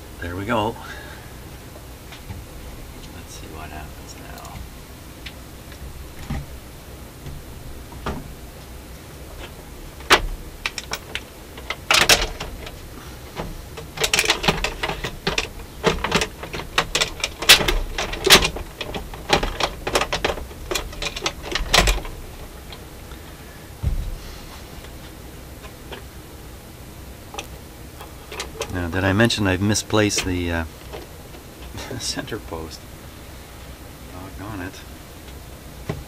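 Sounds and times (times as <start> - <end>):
turntable deck clicks and clatter: 9.4 - 22.9.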